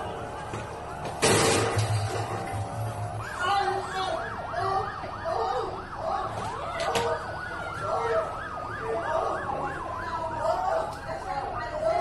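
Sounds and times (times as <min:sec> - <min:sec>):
siren rising and falling: 0:00.0 - 0:11.1
siren yelping: 0:02.8 - 0:11.8.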